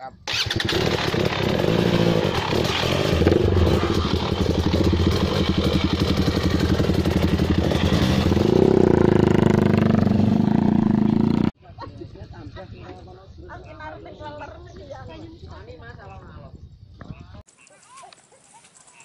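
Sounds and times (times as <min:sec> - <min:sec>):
dirt bike engine running: 0:00.3 - 0:11.5.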